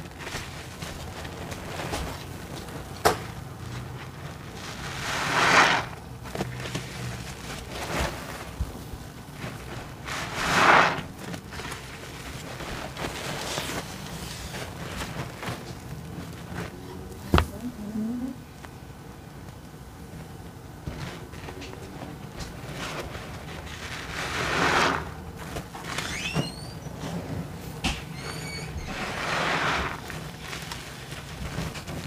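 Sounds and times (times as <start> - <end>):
sponge squeezed in soapy water: 0.0 - 16.7, 22.4 - 27.2, 28.1 - 32.0.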